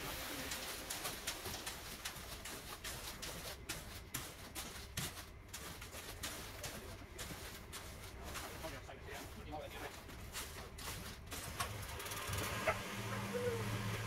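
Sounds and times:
shovel scraping concrete: 10.2 - 13.5.

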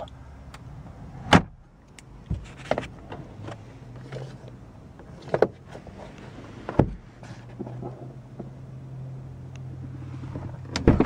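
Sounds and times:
car interior fittings clicking: 10.4 - 11.0.

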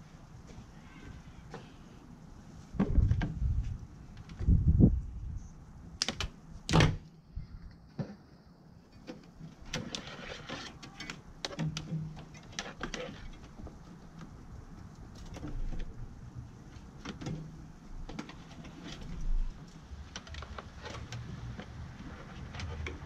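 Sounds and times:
gloved hands handling cable: 7.6 - 23.0.

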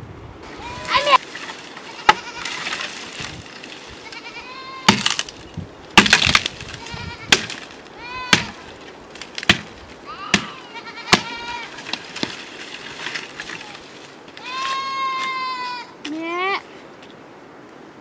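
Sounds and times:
goats bleating: 0.6 - 1.2, 1.8 - 2.8, 4.0 - 4.9, 6.8 - 7.4, 8.0 - 8.5, 10.0 - 11.8, 13.5 - 16.0
blade chopping tree branch: 4.9 - 13.8.

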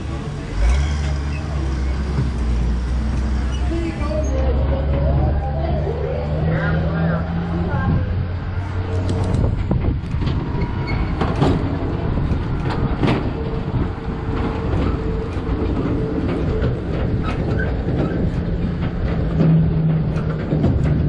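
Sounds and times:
tram cars rumbling: 0.0 - 21.0
rattles and knocks: 8.9 - 21.0.

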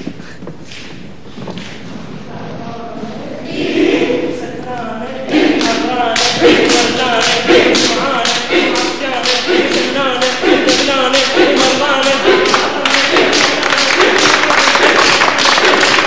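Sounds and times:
voices singing together: 2.3 - 16.0
people clapping in rhythm: 5.3 - 16.0.

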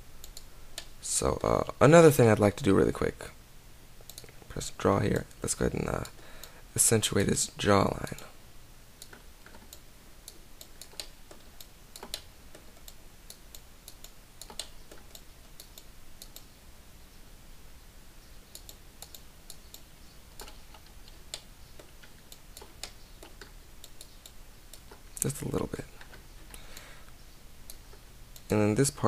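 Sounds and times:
keyboard and mouse clicks: 0.2 - 1.5, 4.0 - 4.5, 9.0 - 16.5, 18.5 - 26.9.

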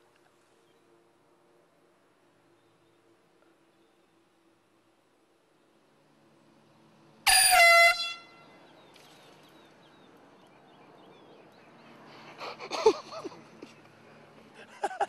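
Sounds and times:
air horn blast: 7.3 - 8.5.

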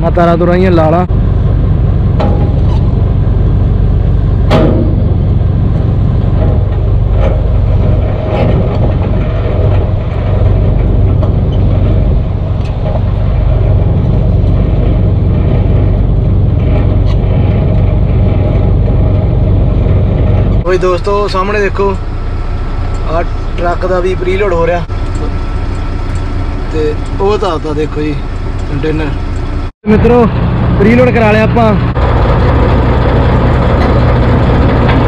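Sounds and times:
diesel truck engine rumbling: 0.0 - 35.0
sharp knock: 4.5 - 5.2.

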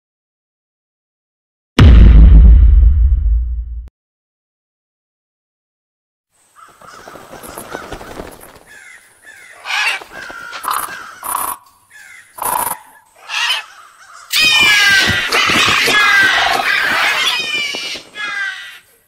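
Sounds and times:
crows cawing: 6.5 - 19.0.

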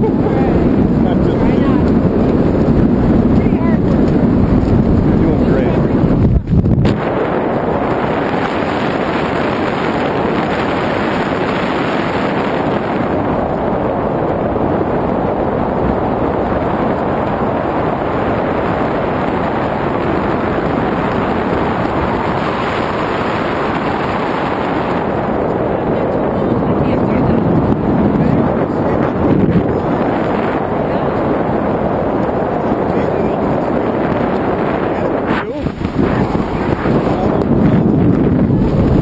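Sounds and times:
wind buffeting microphone: 0.0 - 39.0.

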